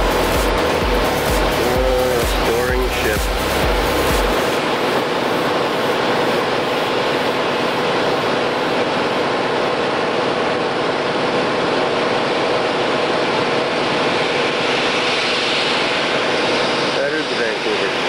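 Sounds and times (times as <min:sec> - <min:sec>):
motor boat engine running: 0:00.0 - 0:05.4.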